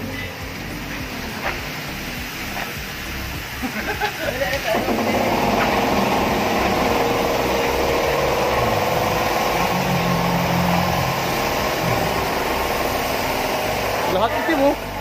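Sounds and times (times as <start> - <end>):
motor droning hum: 0.3 - 15.0
low tone: 4.8 - 14.0.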